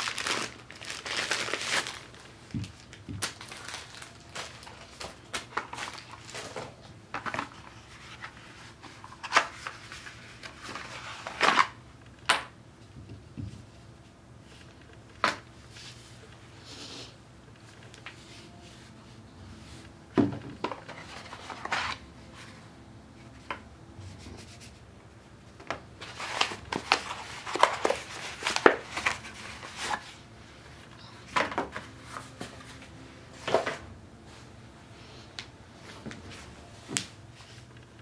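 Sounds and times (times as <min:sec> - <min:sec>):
paper leaflets rustling: 0:00.0 - 0:11.8, 0:26.0 - 0:30.2.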